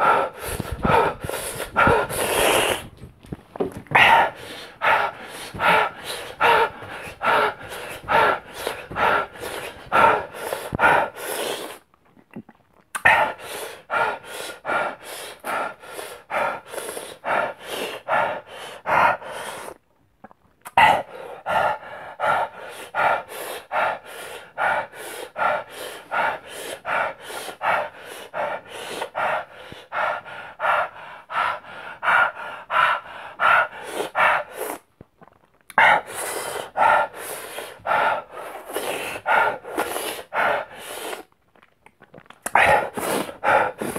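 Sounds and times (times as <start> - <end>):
man panting hard: 0.0 - 2.9, 3.9 - 11.8, 13.1 - 19.8, 20.8 - 34.8, 35.8 - 41.2, 42.5 - 43.9.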